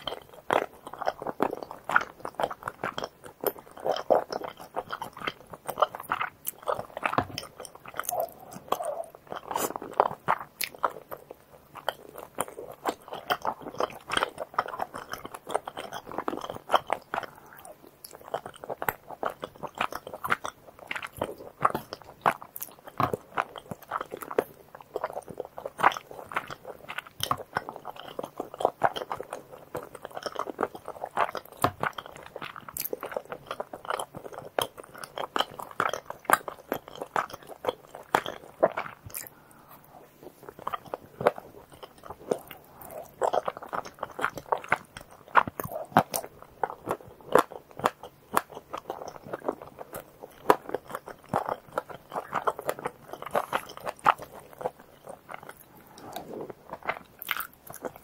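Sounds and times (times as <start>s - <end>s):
close chewing: 0.0s - 58.0s.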